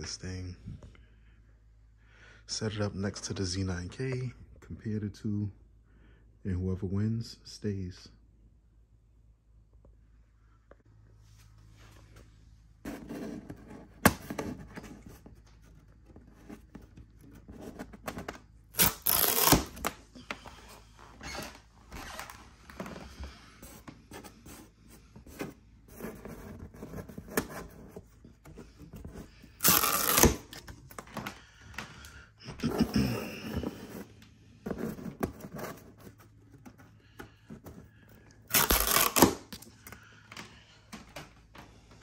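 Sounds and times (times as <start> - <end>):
hands rubbing cardboard: 22.7 - 30.4.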